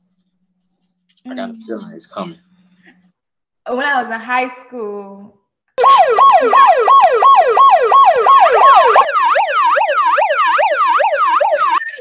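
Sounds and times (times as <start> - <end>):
megaphone siren wailing: 5.8 - 12.0.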